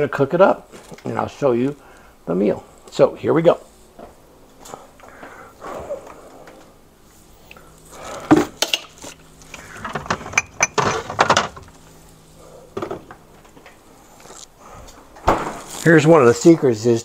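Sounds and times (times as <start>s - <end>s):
kitchen items clinking and clattering: 9.6s - 11.7s.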